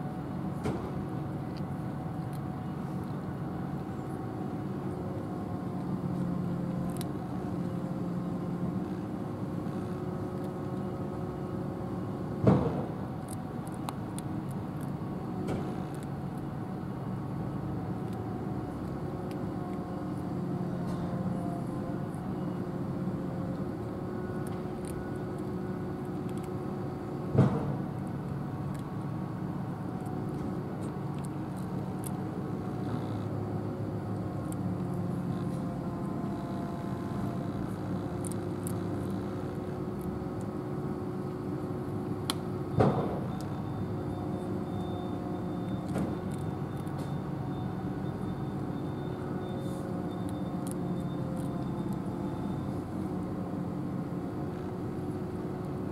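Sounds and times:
engine drone: 0.0s - 55.9s
cat chewing dry kibble: 24.4s - 26.8s.

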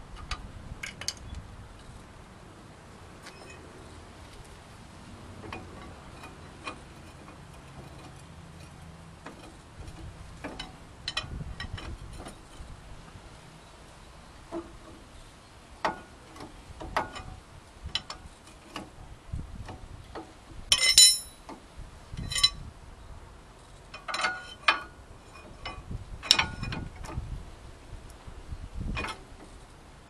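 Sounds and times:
steel tools clinking on metal: 20.7s - 21.5s.

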